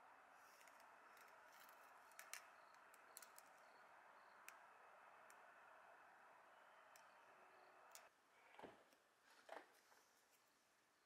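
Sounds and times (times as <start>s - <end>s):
soft clicks: 6.8s - 8.1s.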